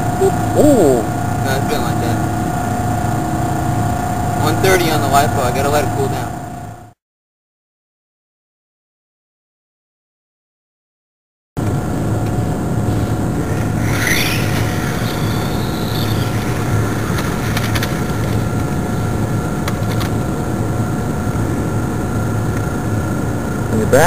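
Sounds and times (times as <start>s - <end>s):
outdoor rumble and hiss: 0.0s - 6.9s, 11.6s - 24.0s
low hum: 0.0s - 7.0s, 11.6s - 24.0s
wavering whistle: 13.5s - 19.0s.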